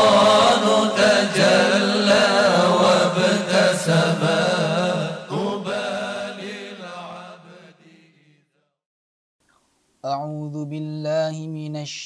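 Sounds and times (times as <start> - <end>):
held vocal drone: 0.0 - 7.8
voices singing wordless melisma: 0.0 - 8.0.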